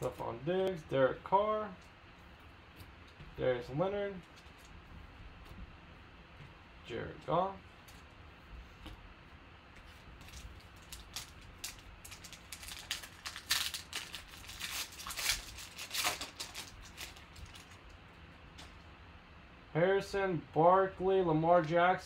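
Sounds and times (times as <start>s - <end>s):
foil pack tearing and crinkling: 10.2s - 17.8s.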